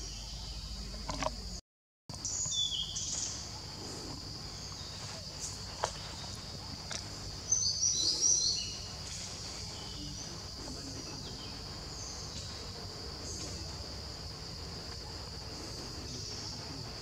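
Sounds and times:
high-pitched insect drone: 2.2 - 17.0
bird chirps: 7.4 - 10.3.

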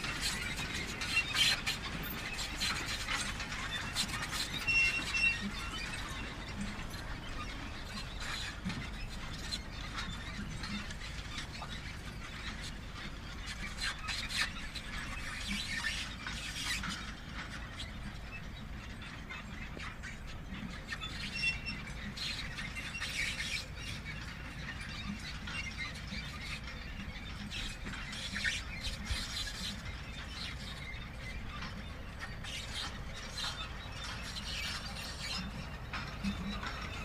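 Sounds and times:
squeaks and clicks of mechanism: 0.0 - 37.0
manure spreader rumbling: 29.8 - 37.0.

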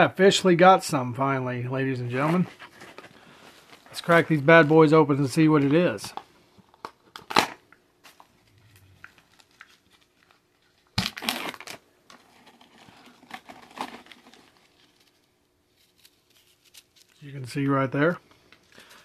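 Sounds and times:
foil seal crinkling and tearing: 8.7 - 17.3.

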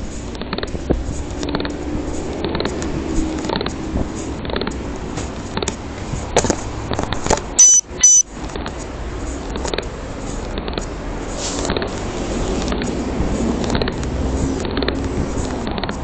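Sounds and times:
traffic noise: 0.0 - 16.0
high-pitched electronic beeps: 7.6 - 8.3.

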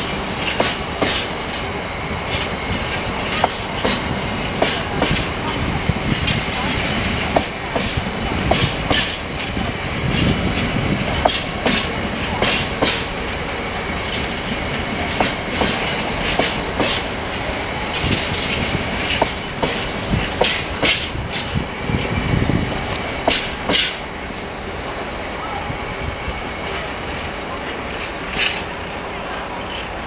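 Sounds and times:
wheels clacking over rail joints: 0.0 - 25.2, 26.5 - 30.0
freight train rumbling past: 0.0 - 30.0
faint high wheel squeal: 2.4 - 3.9, 10.1 - 10.6, 14.1 - 16.0.

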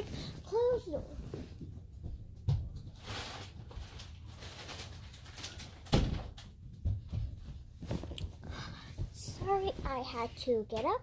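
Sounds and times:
knocks and thumps: 5.8 - 10.0.

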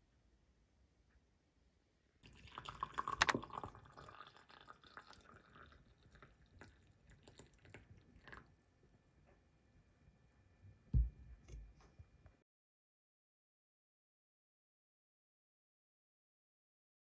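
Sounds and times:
water dripping: 2.2 - 8.6
liquid pouring into a mug: 2.2 - 9.0.

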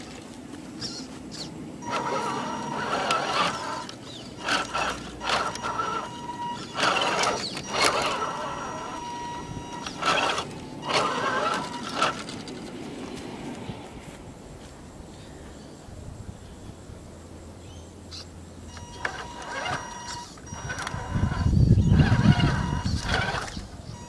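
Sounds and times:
tyres crunching through grass and dirt: 0.0 - 15.6
electric motor and gearbox whining: 0.8 - 13.2, 18.7 - 24.0.

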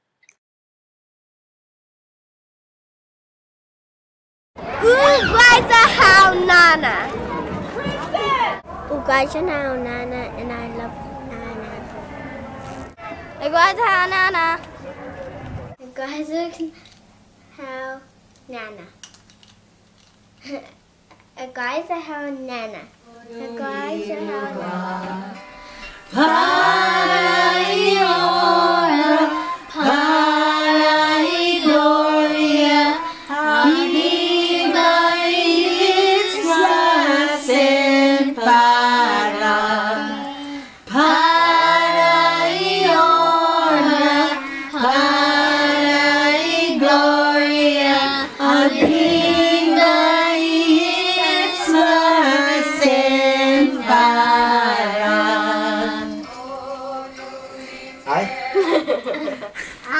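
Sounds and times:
women and children singing: 23.1 - 59.5.

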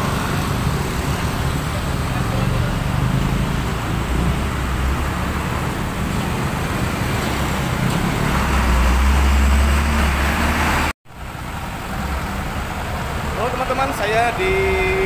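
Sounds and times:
motorcycles and cars passing: 0.0 - 10.9
truck passing: 0.0 - 15.0.

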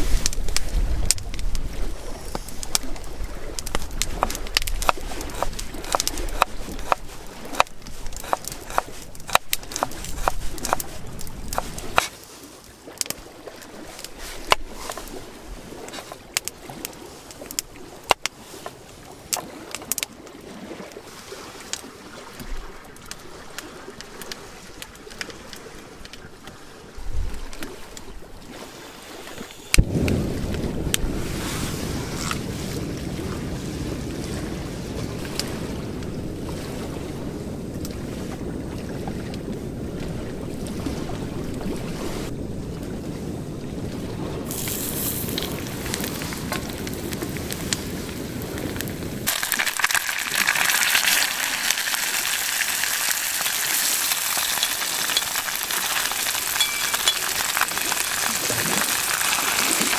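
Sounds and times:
wind rumble on microphone: 0.0 - 12.1, 13.0 - 49.6
wood fire crackling and popping: 0.2 - 12.1, 44.5 - 59.9.

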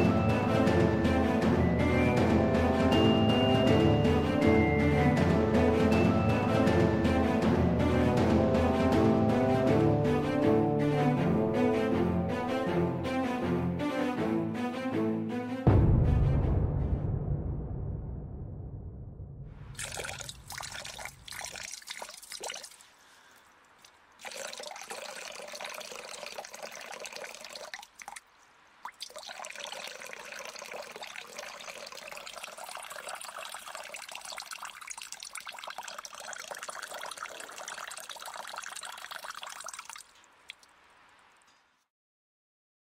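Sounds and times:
water running and splashing: 19.8 - 40.8.

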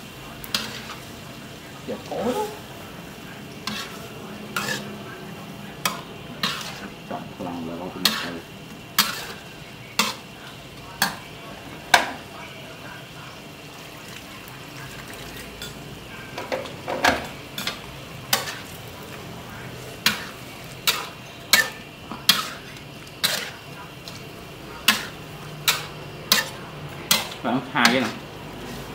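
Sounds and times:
food sizzling: 0.0 - 28.9
metal spatula scraping a wok: 0.4 - 1.1, 3.6 - 5.0, 5.8 - 7.0, 8.0 - 10.4, 17.5 - 18.9, 19.8 - 28.9.

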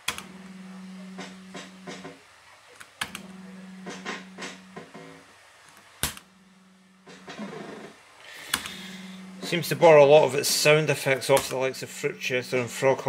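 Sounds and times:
steady buzzing tone: 0.0 - 2.2, 3.0 - 5.4, 6.0 - 13.0.

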